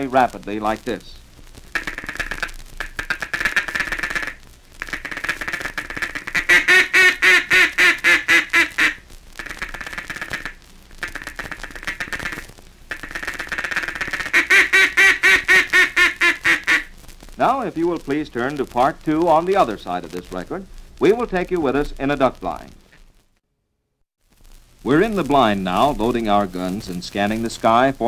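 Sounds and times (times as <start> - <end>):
duck call quacks: 1.7 - 16.9
duck call ticking chatter: 1.7 - 16.9.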